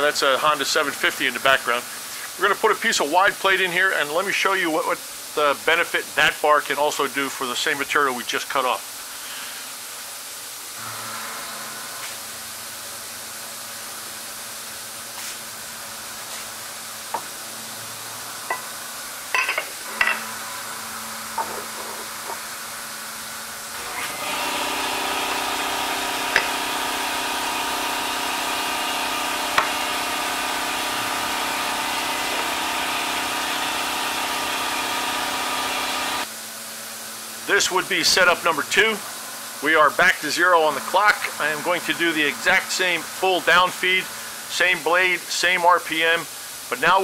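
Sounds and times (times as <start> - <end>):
faint steady hiss: 0.0 - 10.8, 37.1 - 47.0
bandsaw machine hum: 15.6 - 36.3, 37.4 - 44.9.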